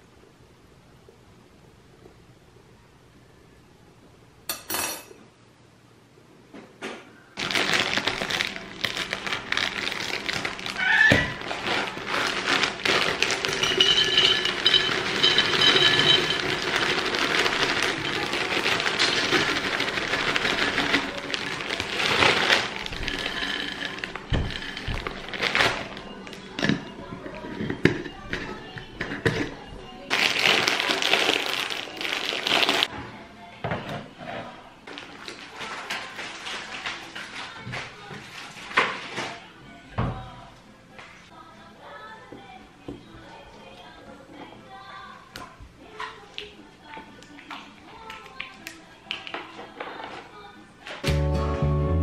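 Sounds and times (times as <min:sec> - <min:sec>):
biscuits clattering into glass jar: 0:07.4 - 0:26.0
plastic bag crinkling: 0:07.4 - 0:26.7, 0:30.0 - 0:32.9, 0:34.9 - 0:37.6.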